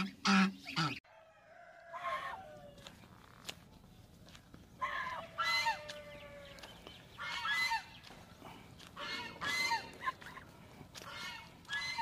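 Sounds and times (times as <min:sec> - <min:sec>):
geese honking: 0:00.0 - 0:01.0, 0:04.8 - 0:12.0.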